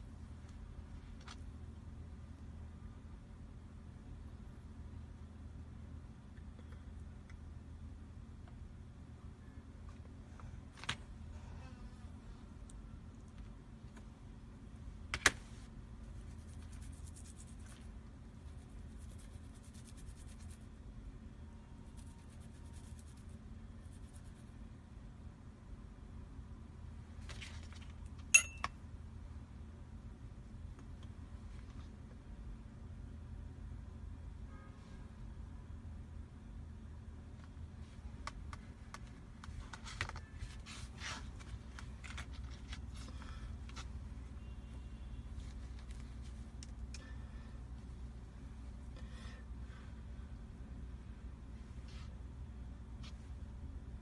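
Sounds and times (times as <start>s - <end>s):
low steady hum: 0.0s - 54.0s
fingertips rubbing eyelash hairs: 16.2s - 20.7s, 21.8s - 24.5s.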